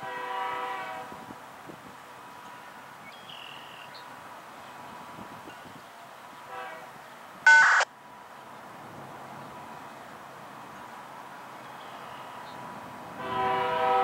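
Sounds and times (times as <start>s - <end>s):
freight train approaching: 12.9s - 14.0s.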